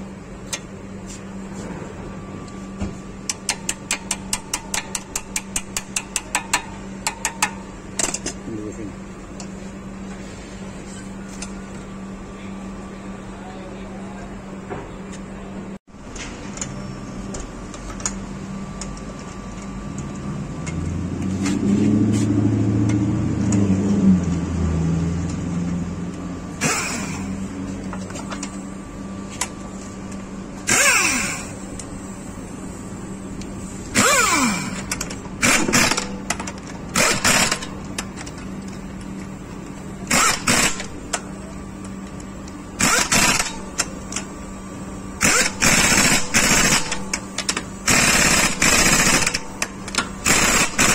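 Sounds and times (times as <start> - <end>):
low engine-like rumble: 0.0 - 37.0
steady hum: 0.0 - 50.9
impact wrench bursts: 26.6 - 27.5, 30.6 - 31.6, 33.9 - 38.1, 40.0 - 41.1, 42.8 - 44.2, 45.2 - 50.9.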